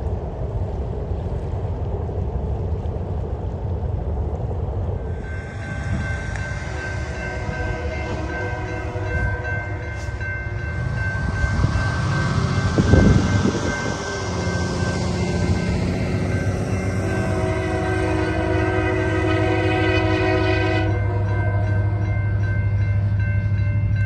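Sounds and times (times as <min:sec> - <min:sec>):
wind rumble on microphone: 0:00.0 - 0:20.8
locomotive horn: 0:05.4 - 0:22.4.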